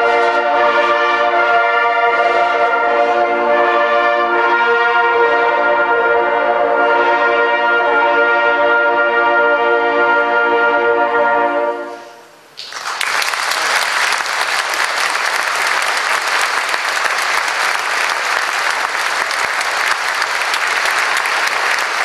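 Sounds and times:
horn ensemble chord: 0:00.0 - 0:12.3
audience applauding: 0:12.6 - 0:22.0.

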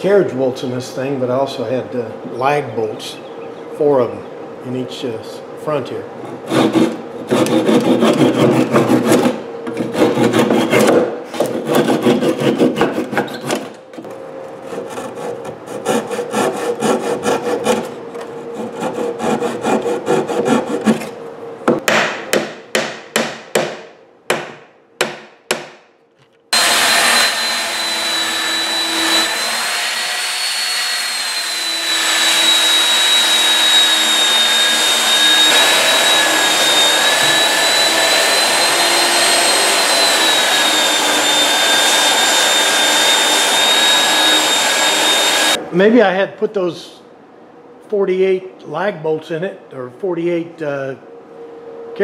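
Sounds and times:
blade scraping wood: 0:06.3 - 0:13.7, 0:14.6 - 0:21.2
hand saw cutting wood: 0:06.3 - 0:13.7, 0:14.6 - 0:21.2, 0:26.5 - 0:45.6
belt sander whining: 0:26.5 - 0:45.6.

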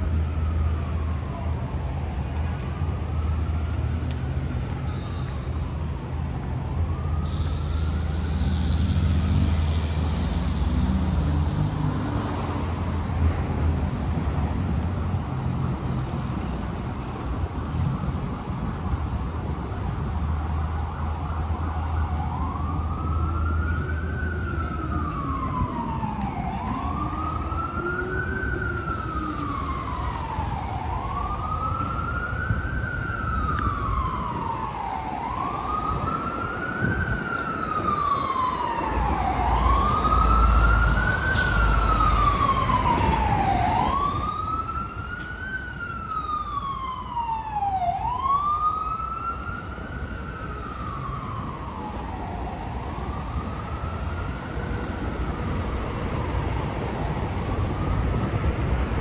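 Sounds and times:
emergency siren wailing: 0:00.0 - 0:59.0
street traffic rumble: 0:00.0 - 0:59.0.

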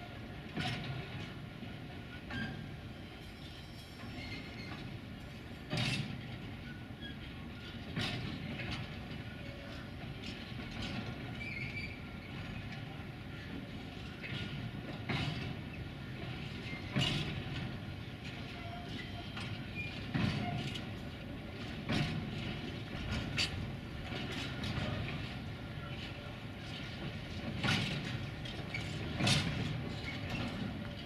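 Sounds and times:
faint wheel squeal: 0:02.3 - 0:04.8, 0:11.4 - 0:12.1, 0:18.5 - 0:20.8
freight wagons rolling rumble: 0:04.2 - 0:31.0.

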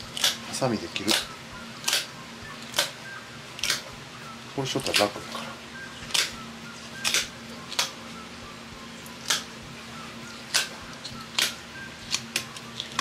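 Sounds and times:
kitchen shears cutting fish bones: 0:00.0 - 0:03.9, 0:04.7 - 0:05.4, 0:06.0 - 0:08.0, 0:09.0 - 0:09.5, 0:10.4 - 0:13.0
low steady hum: 0:00.0 - 0:13.0.

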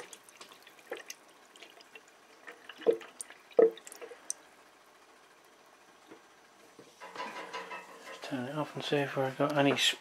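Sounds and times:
water drips plopping into jug: 0:00.0 - 0:04.4.

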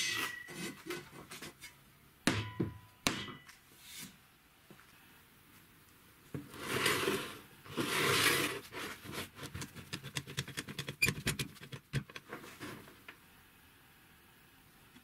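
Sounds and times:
rough scraping rustles: 0:06.4 - 0:09.7.

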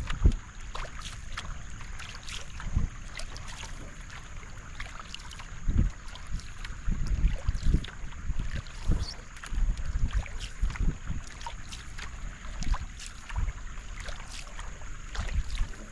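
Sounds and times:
paddle splashing in water: 0:00.0 - 0:15.9
wind rumbling on microphone: 0:00.0 - 0:15.9.

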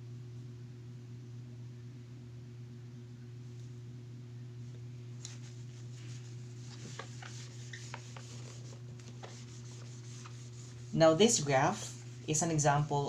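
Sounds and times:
low electrical hum: 0:00.0 - 0:13.0
hand rubbing on whiteboard: 0:05.2 - 0:12.9.

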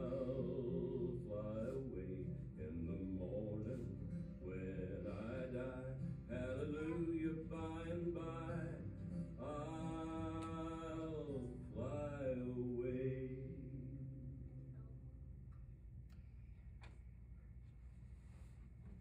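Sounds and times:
person singing slow song: 0:00.0 - 0:14.8.

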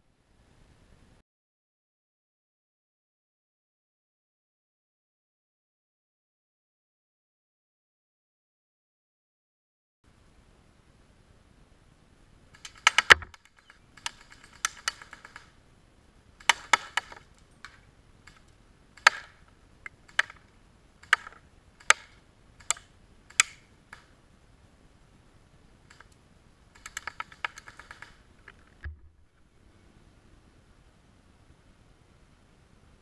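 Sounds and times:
airsoft rifle shots: 0:12.5 - 0:15.6, 0:16.4 - 0:18.4, 0:19.0 - 0:20.4, 0:21.0 - 0:24.1.

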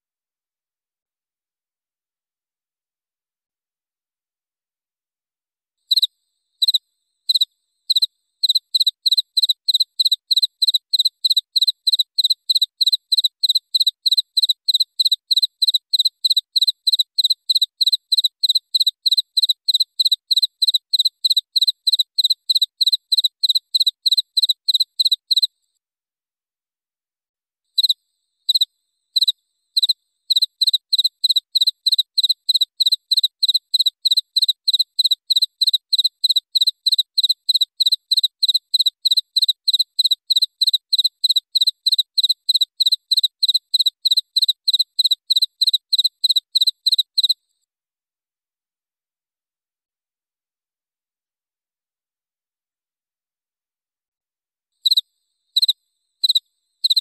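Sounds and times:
cricket chirping: 0:05.9 - 0:25.5, 0:27.8 - 0:47.4, 0:54.8 - 0:57.0.

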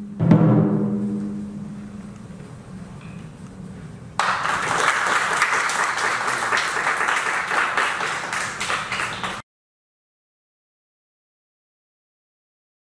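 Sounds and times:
small audience clapping: 0:04.2 - 0:09.4.

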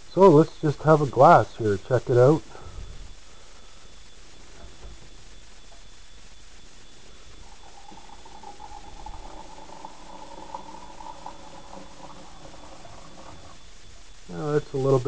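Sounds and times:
liquid trickling into a cup: 0:07.4 - 0:13.6.

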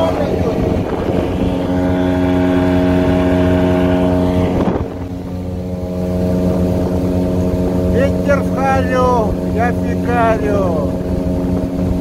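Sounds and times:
outboard motor running: 0:00.0 - 0:12.0
water rushing along hull: 0:00.0 - 0:12.0.

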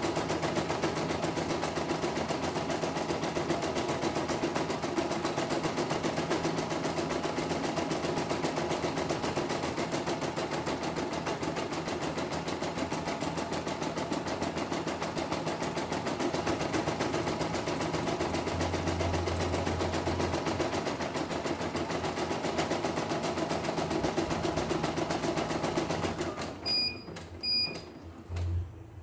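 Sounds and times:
embroidery machine stitching: 0:00.0 - 0:28.6
short electronic beeps: 0:26.6 - 0:27.9.

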